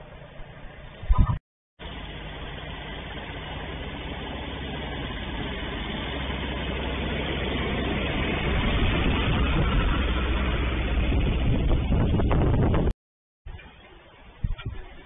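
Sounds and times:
buggy engine running: 0:01.8 - 0:12.9.

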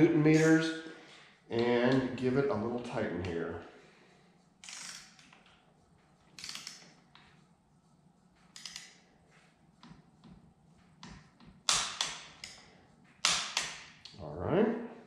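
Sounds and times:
torque wrench ratchet clicks: 0:04.6 - 0:05.6, 0:06.4 - 0:06.9.

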